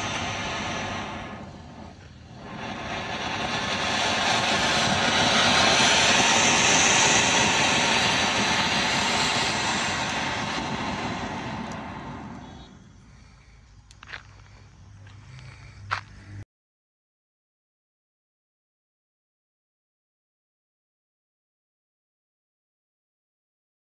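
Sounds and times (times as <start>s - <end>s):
firework fountain hissing: 0.0s - 16.4s.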